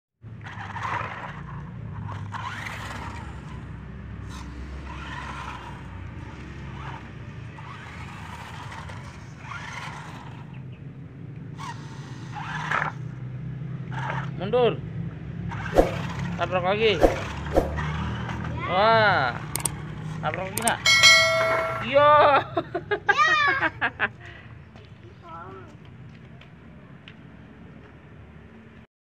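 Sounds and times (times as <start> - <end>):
tyres scraping on concrete: 0.4 - 3.6, 15.5 - 18.6
toy car motor humming: 0.4 - 10.5, 11.6 - 13.2, 17.2 - 21.4.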